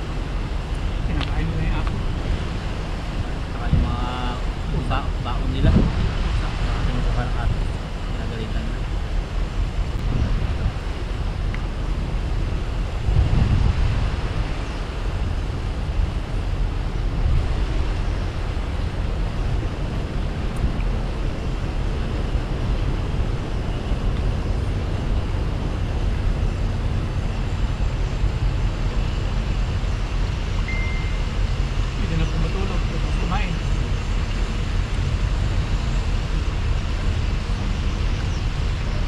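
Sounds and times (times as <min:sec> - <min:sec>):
vehicle road noise rumble: 0:00.0 - 0:39.0
brief high tone: 0:30.7 - 0:31.3.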